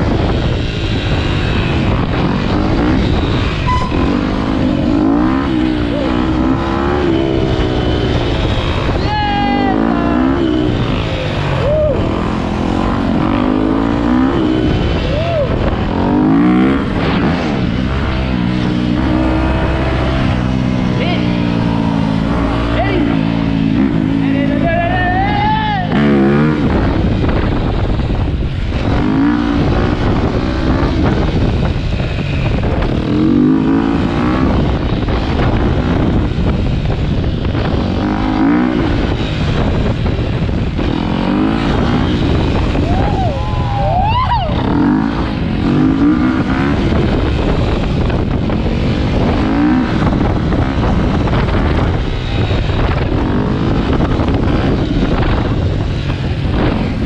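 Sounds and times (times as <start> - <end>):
dirt bike engine revving: 0.0 - 57.0
wind rush on microphone: 0.0 - 57.0
higher engine note: 1.1 - 15.6.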